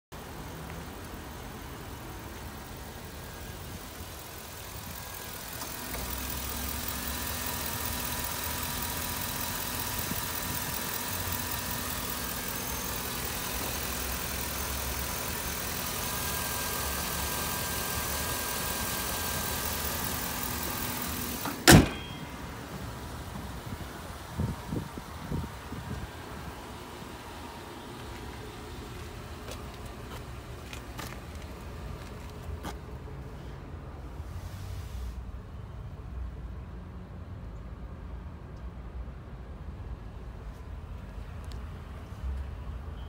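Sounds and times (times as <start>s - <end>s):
truck engine idling: 0.2s - 33.2s.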